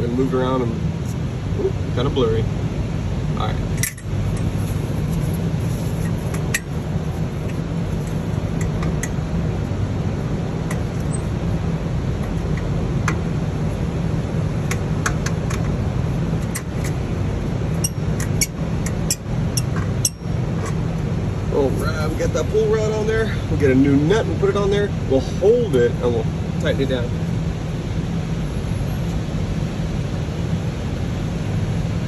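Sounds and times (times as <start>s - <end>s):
steady low hum: 0.0s - 32.0s
small metallic clicks and taps: 14.7s - 15.8s.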